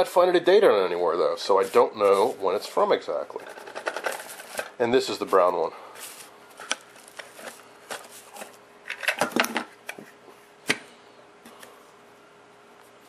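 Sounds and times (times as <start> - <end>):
cardboard rustling: 1.6 - 8.6.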